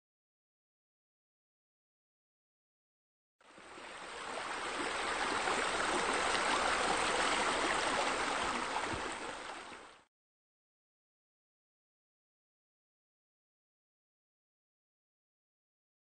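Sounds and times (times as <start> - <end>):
running water: 3.4 - 10.1.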